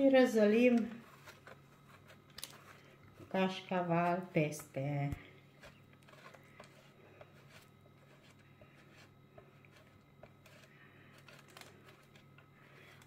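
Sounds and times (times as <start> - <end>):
low steady hum: 0.0 - 13.0
cheese grated on metal grater: 5.6 - 13.0.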